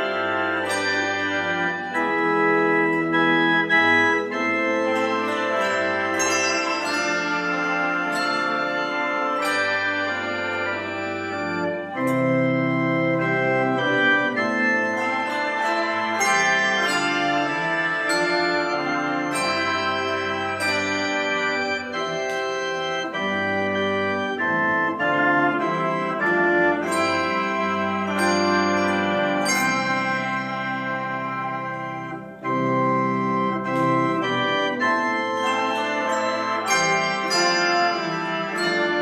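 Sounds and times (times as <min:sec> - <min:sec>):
handbell choir ringing: 0:00.0 - 0:03.2, 0:04.0 - 0:12.4, 0:13.6 - 0:23.2, 0:26.2 - 0:31.8, 0:35.0 - 0:39.0
low bass bells sustaining: 0:04.7 - 0:11.5.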